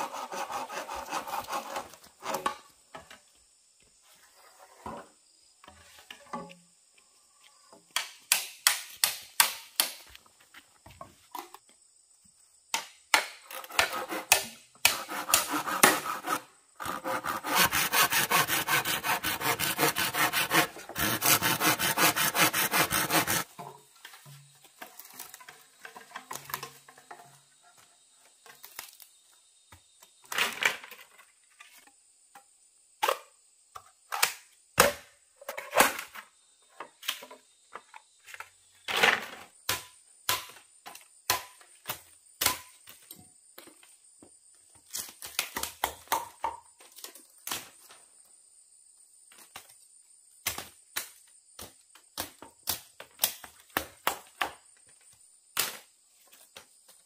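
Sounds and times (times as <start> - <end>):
chopping on wood: 7.9 - 10.2, 12.7 - 16.4, 41.3 - 42.7, 45.3 - 46.6.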